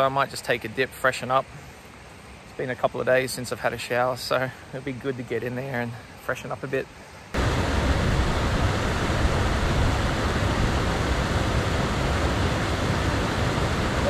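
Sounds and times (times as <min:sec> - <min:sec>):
waterfall rushing into pool: 0:07.4 - 0:14.0.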